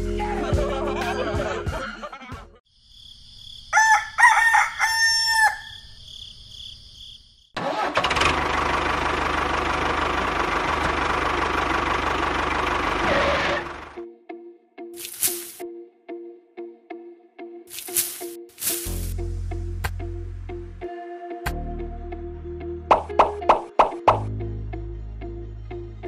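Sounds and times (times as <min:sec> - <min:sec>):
rooster crowing: 0:03.7 - 0:06.0
engine running: 0:07.6 - 0:14.0.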